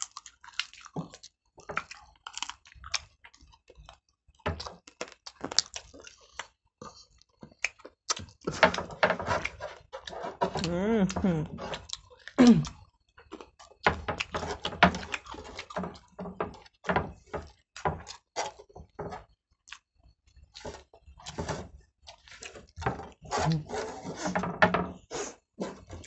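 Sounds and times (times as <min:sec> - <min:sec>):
chewing and mouth noises: 0:00.0 - 0:08.5, 0:09.4 - 0:23.7
fingers scraping rice off trays: 0:20.6 - 0:26.0.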